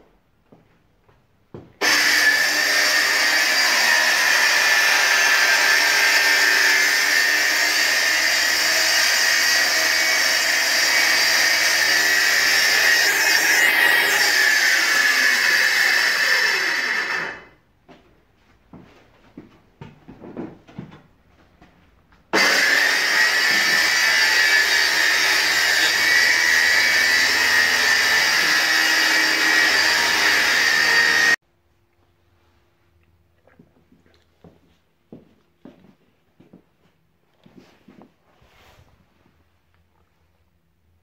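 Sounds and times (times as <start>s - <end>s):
circular saw cutting a board: 1.8s - 17.5s, 22.4s - 31.4s.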